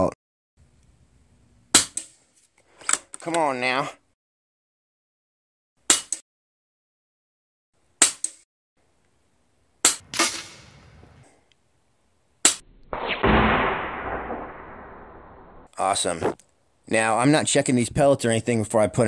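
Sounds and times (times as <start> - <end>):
air rifle shots: 12.4 - 15.5.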